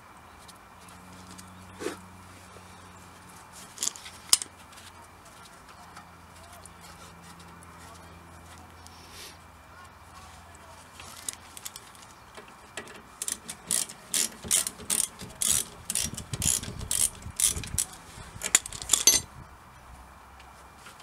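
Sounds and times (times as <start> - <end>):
ratchet wrench clicking: 13.2 - 19.3.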